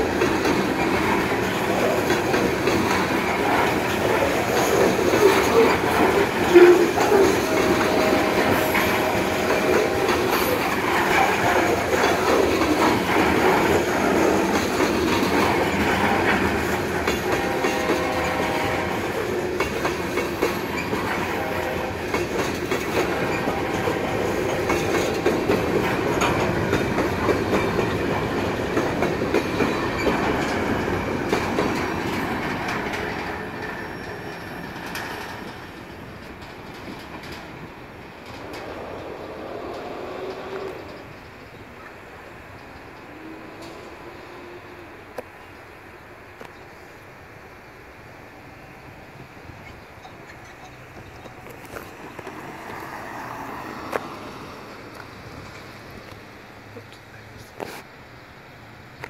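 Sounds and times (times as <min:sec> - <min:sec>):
train wheels clacking over rail joints: 0:00.0 - 0:44.1
distant locomotive horn: 0:05.2 - 0:10.6, 0:17.1 - 0:19.4, 0:21.0 - 0:22.3, 0:22.9 - 0:25.0, 0:38.5 - 0:41.2, 0:43.0 - 0:45.2
wheel squeal: 0:33.2 - 0:35.0.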